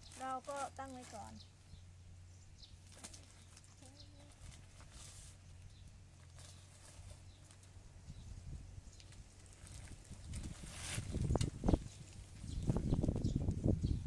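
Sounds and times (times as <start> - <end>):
plastic bags crackling: 0.0 - 1.5, 2.8 - 7.8, 9.0 - 12.7.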